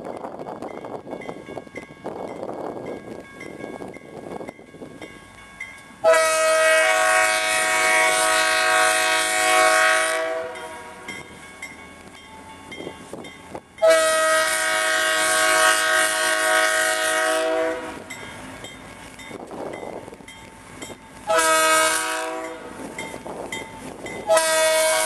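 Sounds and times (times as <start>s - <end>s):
locomotive running on rails: 0.0s - 25.0s
locomotive air horn blasts: 6.0s - 11.1s, 13.8s - 18.1s, 21.2s - 22.8s, 24.2s - 25.0s.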